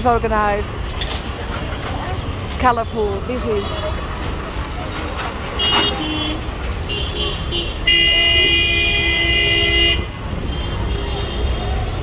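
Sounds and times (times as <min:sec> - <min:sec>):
traffic rumble: 0:00.0 - 0:12.0
loud horn blast: 0:05.6 - 0:11.5
vehicle horns tooting: 0:05.6 - 0:12.0.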